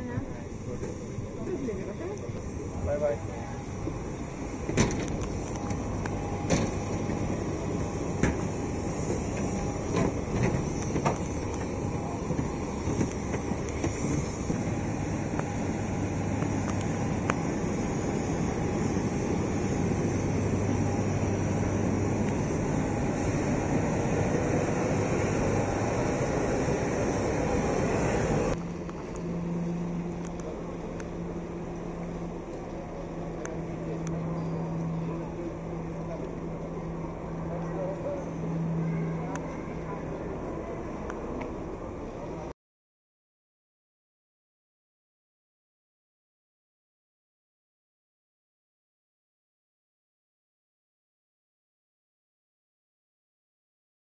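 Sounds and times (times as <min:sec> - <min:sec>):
vehicle running noise: 0:01.7 - 0:42.5.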